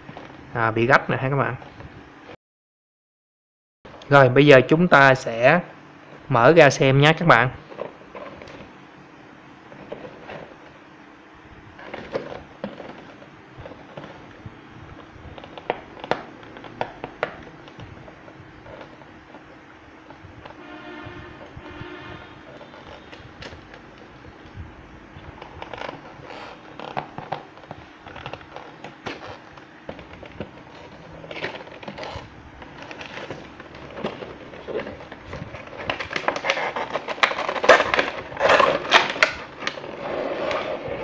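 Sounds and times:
tape peeling off cardboard: 22.2 - 24.0, 25.4 - 39.8
cardboard clicks and scrapes: 25.4 - 41.0.

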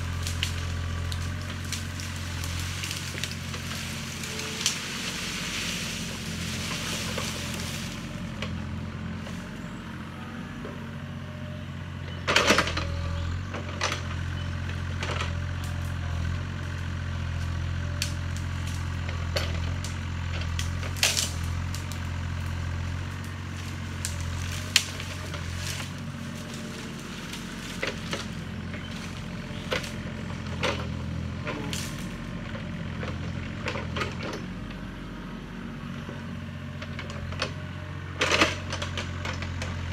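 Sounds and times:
branches cracking and snapping: 0.0 - 9.5, 13.5 - 34.8
branches rustling: 0.0 - 10.1, 14.8 - 34.0
diesel engine running: 0.0 - 39.9.

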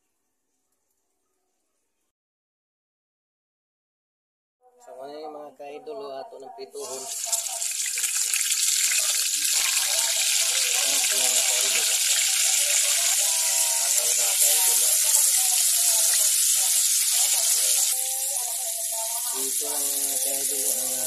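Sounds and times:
water running from a tap: 6.8 - 21.0
fish being washed: 6.9 - 21.0.

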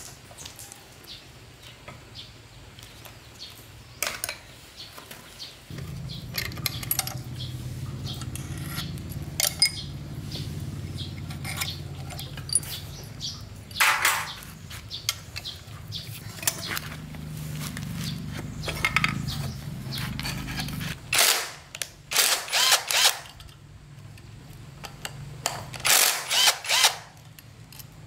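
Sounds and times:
metal scrape: 5.7 - 13.0, 16.0 - 21.2
metal tools clinking: 5.7 - 21.0
low steady hum: 5.7 - 21.2.

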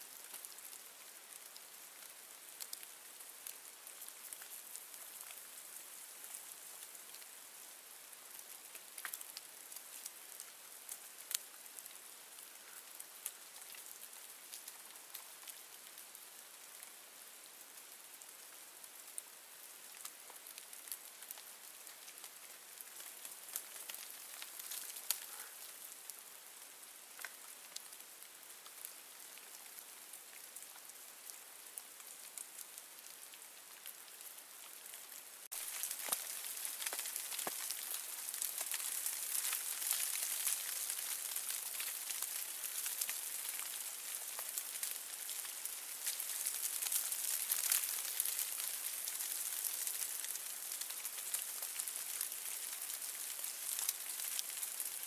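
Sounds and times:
faint steady hiss: 0.0 - 55.0
meltwater dripping: 8.3 - 17.0, 19.8 - 26.4, 27.1 - 29.7, 30.3 - 55.0.

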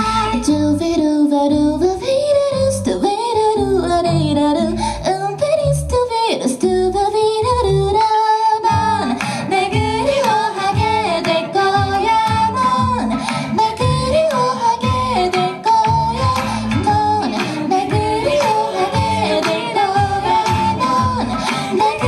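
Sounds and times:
women singing a duet: 0.0 - 22.0
instrumental accompaniment: 8.7 - 22.0.

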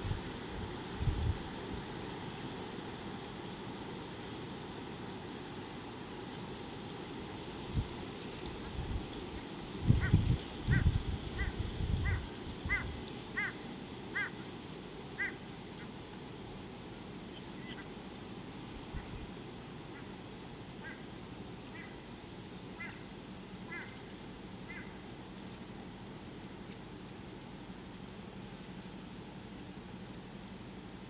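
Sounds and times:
waterfowl honking: 15.2 - 15.4, 23.7 - 24.0
small birds chirping: 24.6 - 25.4.

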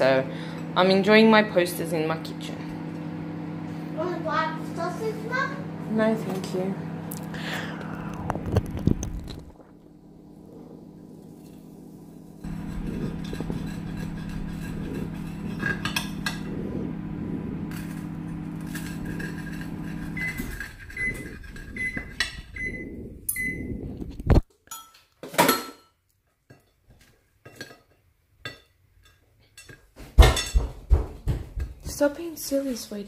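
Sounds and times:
microwave oven humming: 0.0 - 24.4
short high beeps: 21.8 - 23.8.

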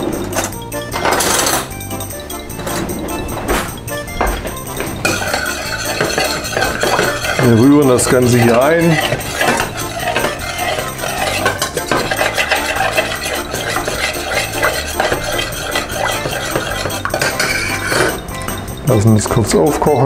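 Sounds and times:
metal spoon stirring in saucepan: 2.5 - 19.4.

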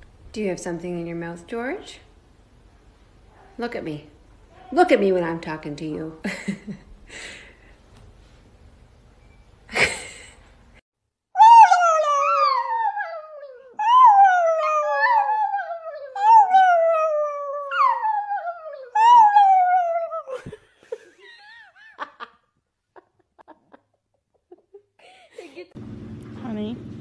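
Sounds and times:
dog howling: 11.4 - 20.3.

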